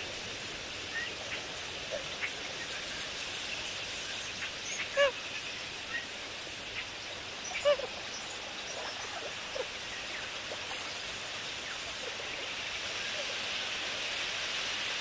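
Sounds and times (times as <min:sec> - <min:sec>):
steady hiss: 0:00.0 - 0:15.0
waterbird calls: 0:04.7 - 0:05.2, 0:07.4 - 0:08.0.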